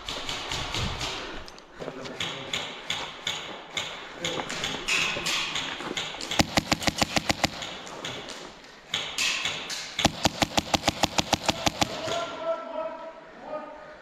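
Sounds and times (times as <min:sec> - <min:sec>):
airsoft rifle rapid shots: 0:06.0 - 0:08.3, 0:10.0 - 0:12.3.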